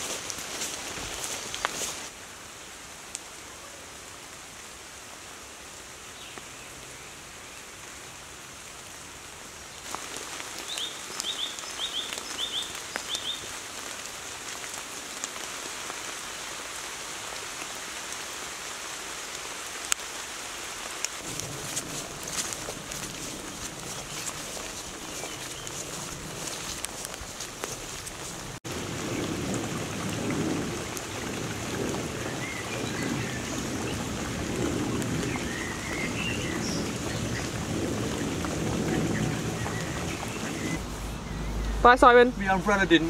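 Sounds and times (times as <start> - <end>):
footsteps on grassy path: 0.0 - 2.1, 21.2 - 28.6
rain pattering on leaves: 0.0 - 43.0.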